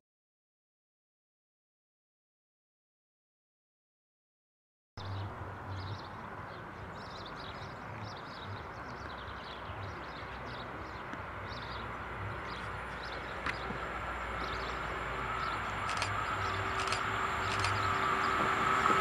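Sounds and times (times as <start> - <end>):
distant freight train rumble: 5.0 - 19.0
small birds chirping: 5.1 - 18.4.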